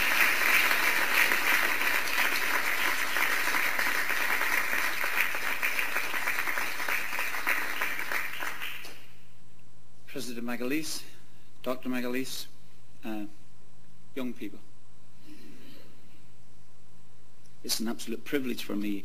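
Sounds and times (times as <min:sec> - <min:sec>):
audience applause: 0:00.0 - 0:09.0.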